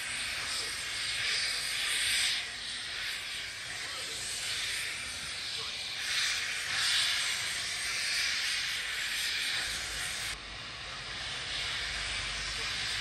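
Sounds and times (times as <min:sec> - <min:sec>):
steam locomotive hissing: 0:00.0 - 0:13.0.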